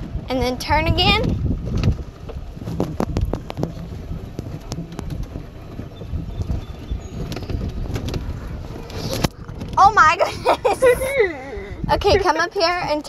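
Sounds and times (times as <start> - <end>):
golf cart low rumble: 0.0 - 13.0
wind buffeting microphone: 0.0 - 13.0
light rattles and knocks: 1.0 - 10.1.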